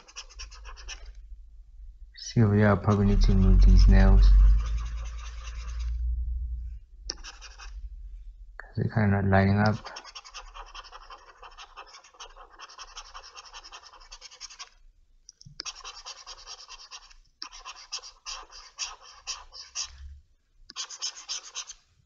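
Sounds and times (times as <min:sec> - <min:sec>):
pointing device rubbing on pad: 0:00.0 - 0:01.2, 0:02.8 - 0:06.0, 0:07.1 - 0:07.8, 0:09.7 - 0:14.7, 0:15.6 - 0:20.1, 0:20.8 - 0:21.8.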